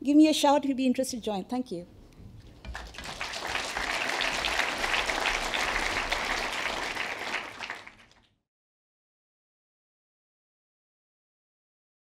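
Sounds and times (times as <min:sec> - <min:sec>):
audience applauding: 0:02.7 - 0:08.3.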